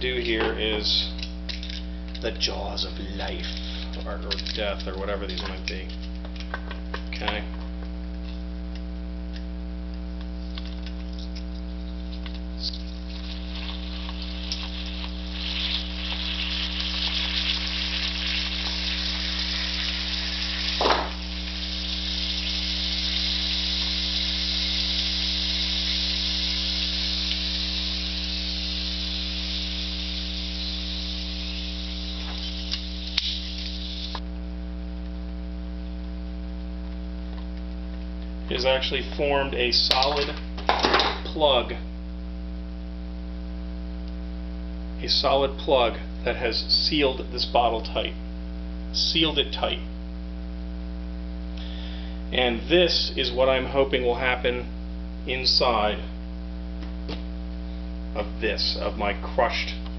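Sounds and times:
mains hum: 0:00.0 - 0:59.9
pressurised gas hissing: 0:13.2 - 0:34.2.

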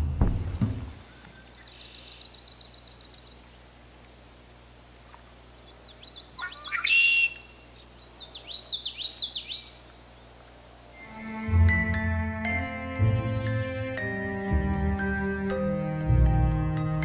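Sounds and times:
blackbird singing: 0:00.2 - 0:03.6, 0:05.5 - 0:10.3
bird trilling: 0:05.6 - 0:09.8.

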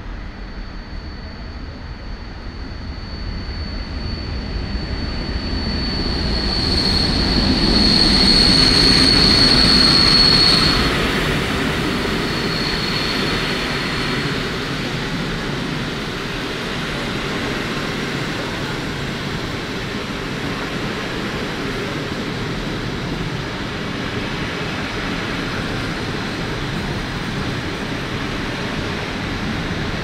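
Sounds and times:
locomotive high whine: 0:00.0 - 0:30.0.

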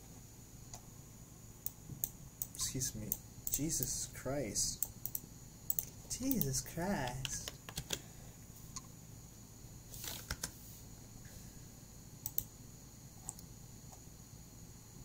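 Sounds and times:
faint steady hum: 0:00.0 - 0:15.0
keyboard and mouse clicks: 0:04.8 - 0:08.0, 0:12.3 - 0:12.5.

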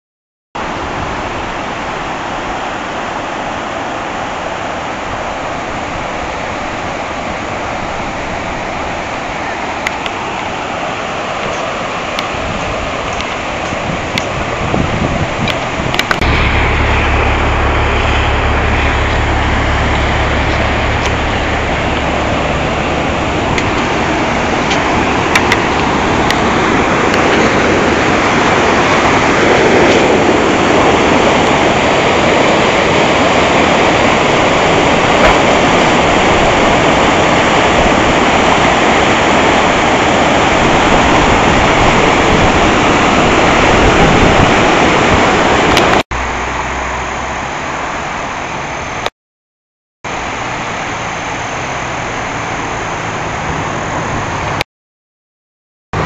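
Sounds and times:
river water roaring: 0:00.6 - 0:49.1, 0:50.1 - 0:54.6
low rumble: 0:14.8 - 0:33.0.

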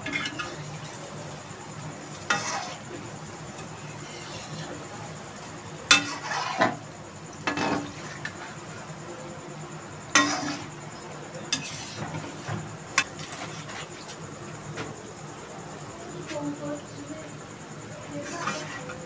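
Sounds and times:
fritters sizzling in hot oil: 0:00.0 - 0:09.0, 0:09.7 - 0:14.7, 0:18.0 - 0:19.0.

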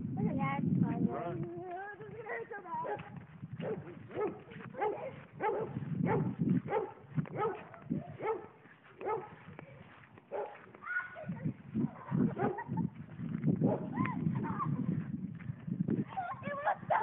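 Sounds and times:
dog barking: 0:02.3 - 0:09.4, 0:10.3 - 0:10.6, 0:12.3 - 0:12.7, 0:13.7 - 0:14.0.

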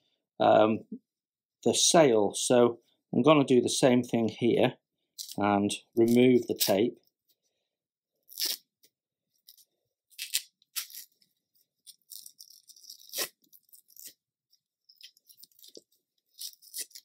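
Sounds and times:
adhesive tape peeling: 0:08.3 - 0:08.8, 0:09.5 - 0:14.2, 0:14.9 - 0:17.0.

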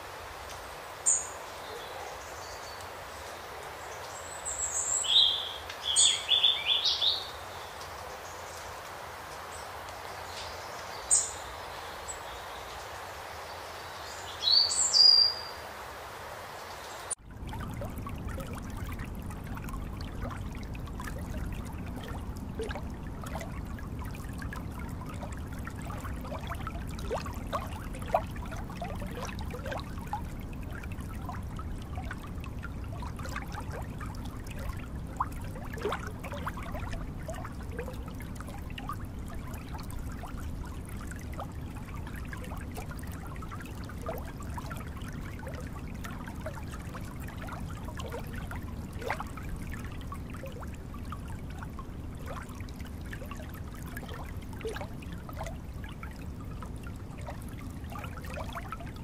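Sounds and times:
water trickling and burbling: 0:00.0 - 0:59.0
water plops: 0:17.1 - 0:59.0.

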